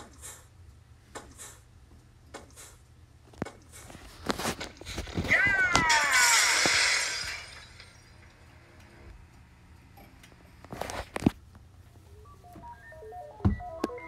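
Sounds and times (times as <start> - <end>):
glass shattering: 5.3 - 8.4
simple electronic melody: 11.8 - 14.0.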